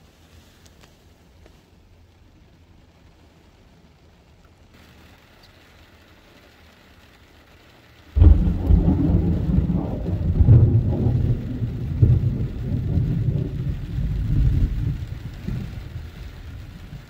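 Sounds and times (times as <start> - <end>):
faint rain: 0.0 - 17.0
thunder rumbling: 8.1 - 17.0.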